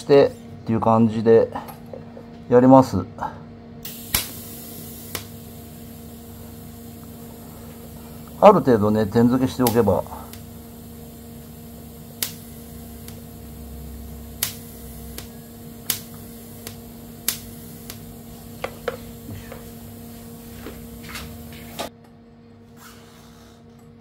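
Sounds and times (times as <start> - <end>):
welding snaps: 3.8 - 6.2, 6.9 - 21.9
welder hum: 3.8 - 21.9.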